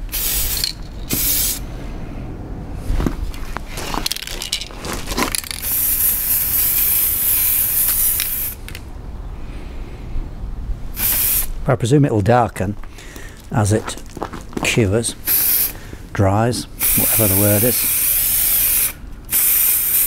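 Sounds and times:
spray can hissing: 0.0s - 1.6s, 5.4s - 8.8s, 11.0s - 11.5s, 15.2s - 15.7s, 16.8s - 20.0s
footsteps on gravel: 2.8s - 5.6s, 12.4s - 16.1s.

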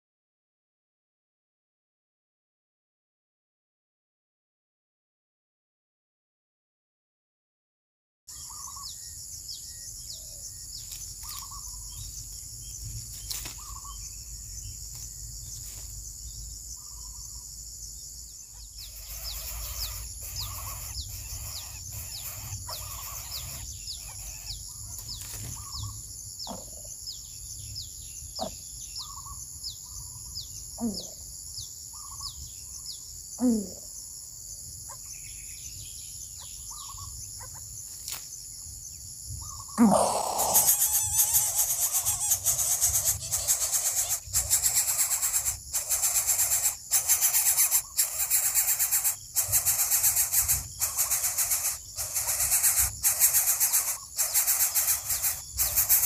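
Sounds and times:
birds chirping: 8.3s - 34.2s, 34.8s - 56.0s
high insect drone: 8.3s - 56.0s
low sweeping calls: 18.5s - 25.8s, 39.4s - 56.0s.

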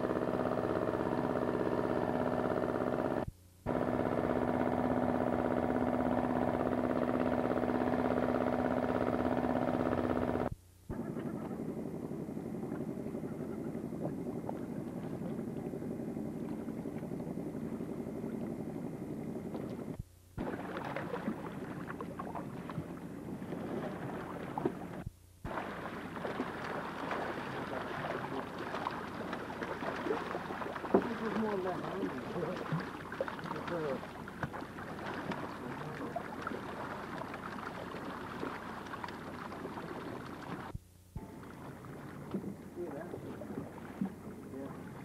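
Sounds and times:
boat engine running: 0.0s - 45.0s
water noise: 0.0s - 45.0s
fish splashing in net: 20.4s - 22.9s, 25.5s - 40.7s.

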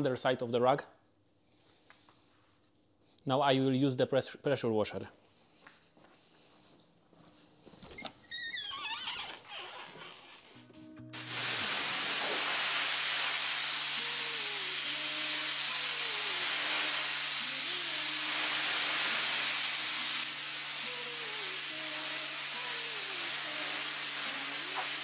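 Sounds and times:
pressure washer spraying water: 11.2s - 25.0s.

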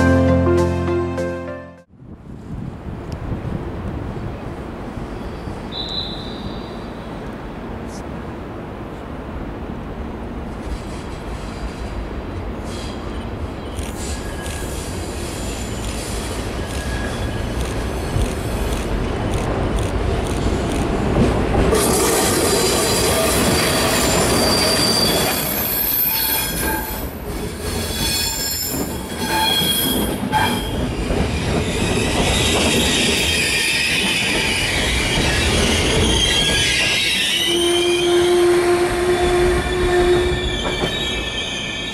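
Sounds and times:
train wheels rumbling on rails: 10.0s - 41.9s
wheels squealing: 12.7s - 19.3s, 22.4s - 41.9s.

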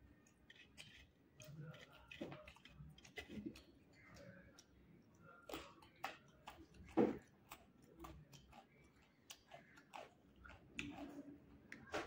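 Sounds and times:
person chewing crunchy food: 0.1s - 11.9s
wet mouth clicks: 10.7s - 11.1s.

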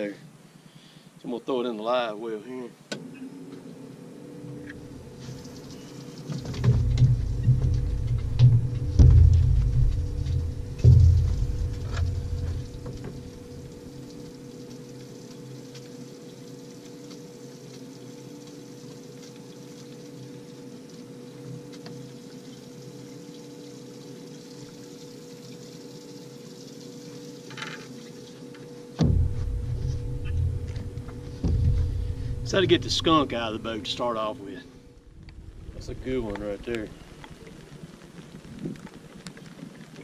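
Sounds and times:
pump humming: 3.0s - 38.5s
water pouring: 4.8s - 39.2s
loud low rumble: 6.5s - 14.0s, 29.0s - 37.6s.

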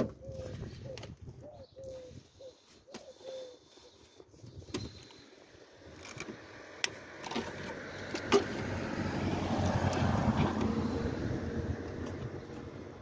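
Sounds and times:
passing vehicle rumble: 5.4s - 13.0s.

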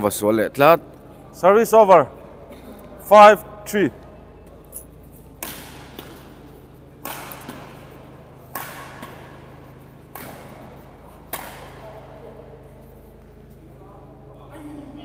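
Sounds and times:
racket hitting shuttlecock: 4.0s - 13.6s.

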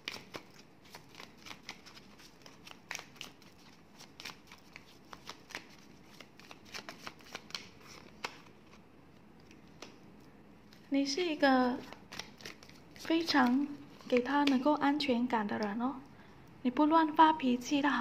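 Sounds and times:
cards shuffled by hand: 0.0s - 8.8s, 11.8s - 14.6s.

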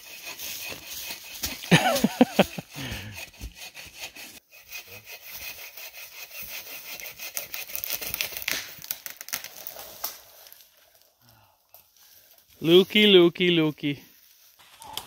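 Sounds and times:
hand saw cutting wood: 0.0s - 8.8s.

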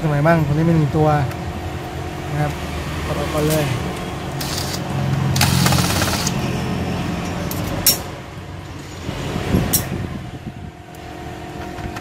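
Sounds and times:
steady background hum: 0.0s - 12.0s
screwdriver scraping: 4.4s - 4.8s.

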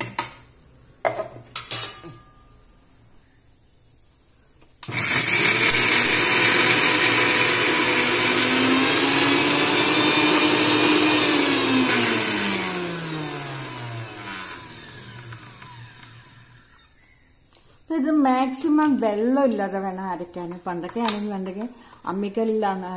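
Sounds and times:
mixer grinder motor whining: 4.8s - 17.0s.

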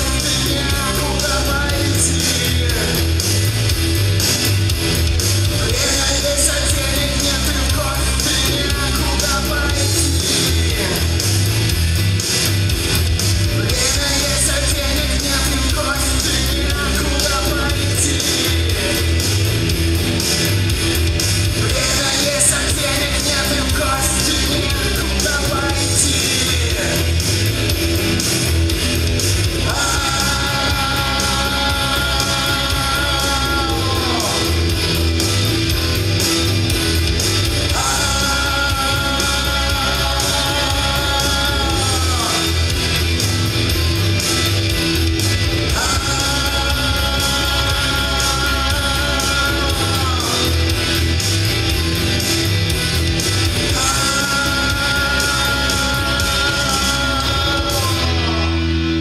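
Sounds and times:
man singing: 0.0s - 4.2s, 4.9s - 11.7s, 13.5s - 19.7s, 21.5s - 27.8s, 29.4s - 35.5s, 37.2s - 43.2s, 45.5s - 51.2s, 53.5s - 59.0s
live rock music: 0.0s - 59.0s.

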